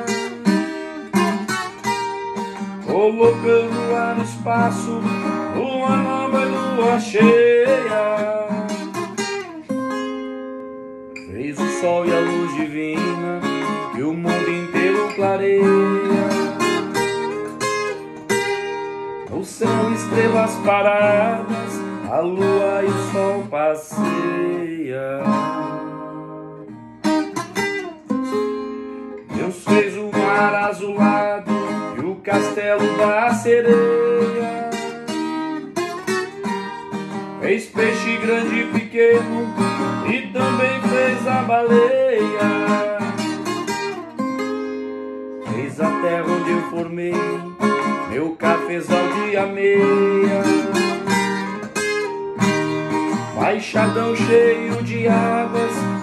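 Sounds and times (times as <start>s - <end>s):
classical guitar playing: 0.0s - 56.0s.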